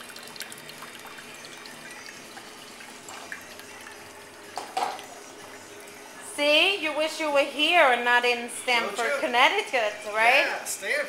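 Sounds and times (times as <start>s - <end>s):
liquid pouring into glass: 0.0s - 6.2s.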